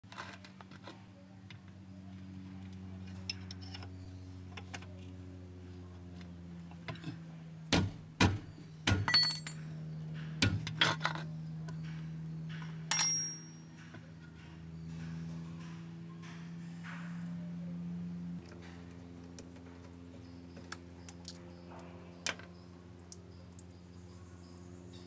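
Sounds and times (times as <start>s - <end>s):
steady low hum: 0.0s - 25.0s
wrench clinking on metal bolt: 9.0s - 9.6s, 12.5s - 13.9s.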